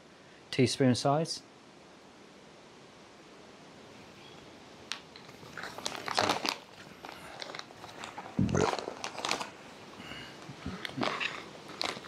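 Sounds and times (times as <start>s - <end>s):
food pouch tearing and crinkling: 5.2s - 9.6s, 10.2s - 12.0s.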